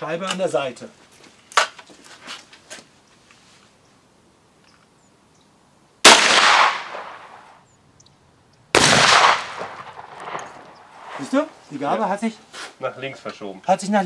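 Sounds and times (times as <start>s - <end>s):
shotgun blasts: 6.0s - 7.6s, 8.7s - 11.2s.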